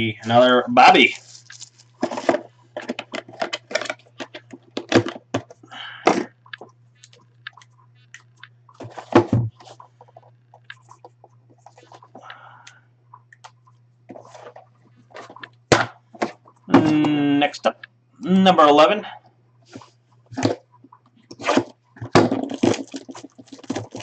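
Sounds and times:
cardboard boxes being handled: 0:01.0 - 0:03.9, 0:21.4 - 0:24.0.

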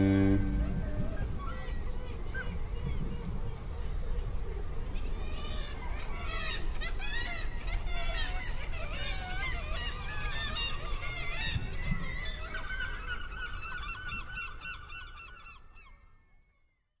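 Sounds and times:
low rumble: 0:00.0 - 0:01.4.

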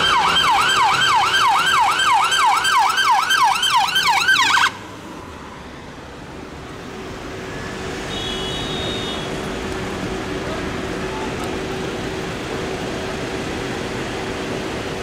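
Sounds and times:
emergency siren yelping: 0:00.0 - 0:04.8
city street traffic hum: 0:00.0 - 0:15.0.

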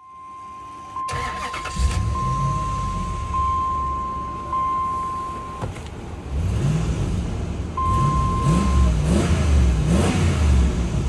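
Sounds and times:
high beep: 0:00.0 - 0:05.7, 0:07.8 - 0:09.0
truck engine revving: 0:01.0 - 0:04.7, 0:05.5 - 0:11.0.

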